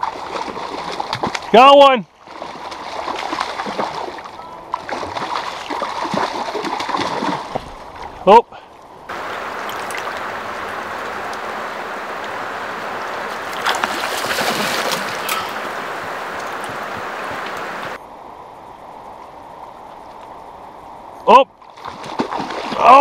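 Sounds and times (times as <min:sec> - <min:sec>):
river water rushing: 0:08.9 - 0:18.0
fish splashing at surface: 0:09.2 - 0:11.6, 0:12.2 - 0:17.0.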